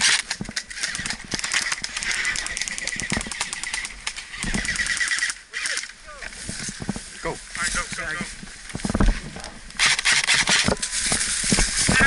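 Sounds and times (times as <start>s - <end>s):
airsoft guns firing bursts: 0.0s - 5.8s, 9.8s - 10.7s.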